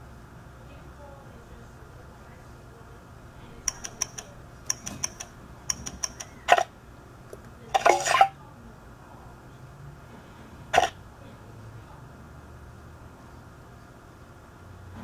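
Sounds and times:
clinky ticks: 3.7 - 6.4.

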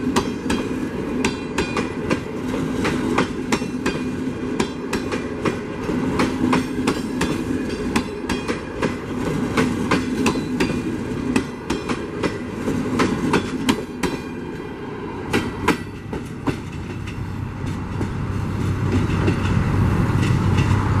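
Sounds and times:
train wheels clicking over rail joints: 0.0 - 14.6, 15.2 - 21.0.

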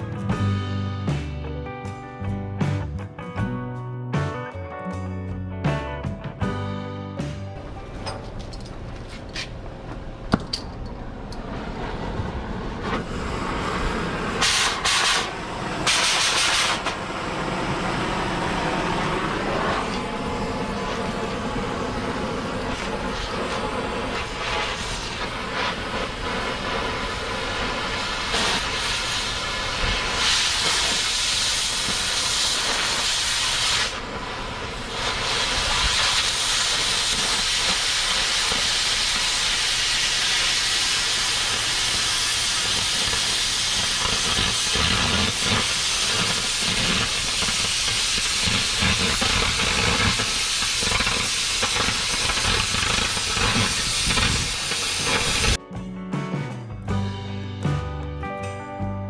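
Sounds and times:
cutting torch hissing: 11.5 - 55.6.

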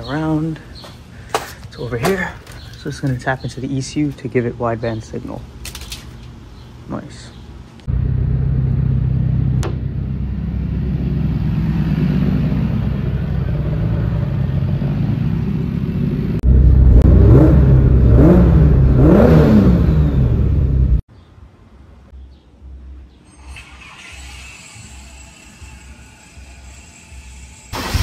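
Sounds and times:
car engine revving: 7.9 - 21.0, 27.7 - 28.0.

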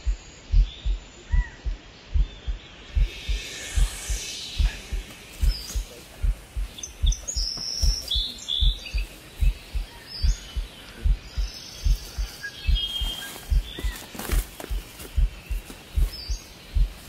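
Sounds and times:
heartbeat thumps: 0.0 - 17.0
small birds chirping: 0.0 - 17.0.

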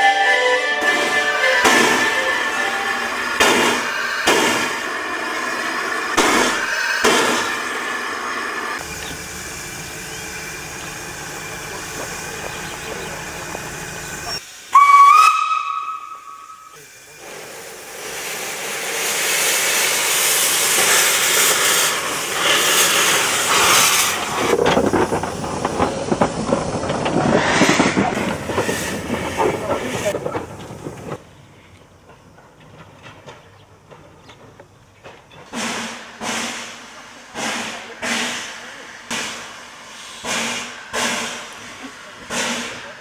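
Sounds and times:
steam whistle blast: 0.0 - 4.8, 14.2 - 16.8
steam hissing: 0.8 - 31.7, 35.5 - 43.0.

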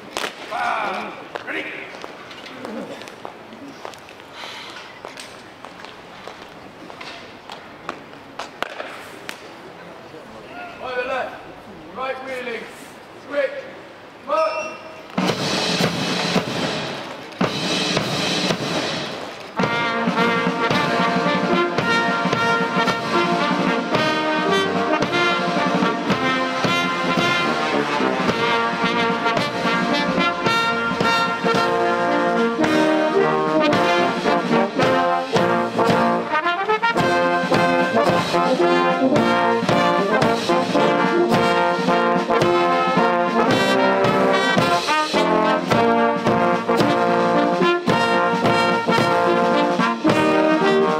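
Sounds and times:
drumming: 15.1 - 50.9
brass band playing: 15.2 - 50.9.

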